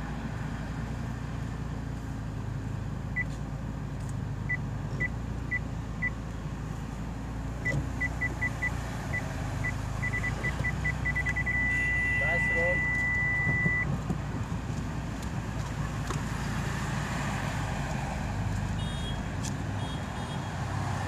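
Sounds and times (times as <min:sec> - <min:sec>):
parking sensor beeping: 0:04.5 - 0:06.2, 0:07.6 - 0:13.9.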